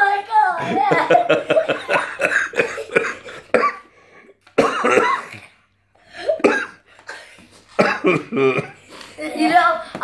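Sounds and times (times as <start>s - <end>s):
child coughing: 1.8s - 3.9s, 4.6s - 8.8s.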